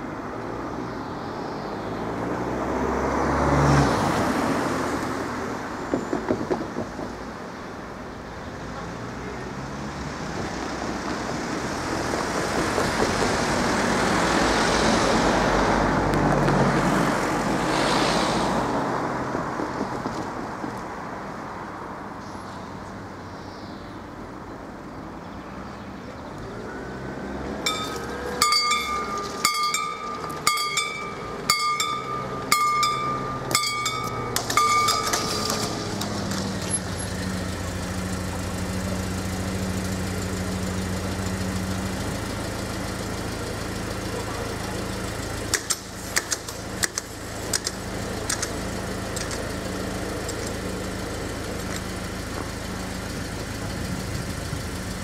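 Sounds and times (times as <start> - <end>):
vehicle passing: 1.8 - 5.7, 8.9 - 22.0, 26.2 - 39.0
low steady engine hum: 22.3 - 55.0
level crossing warning bell: 27.6 - 36.0.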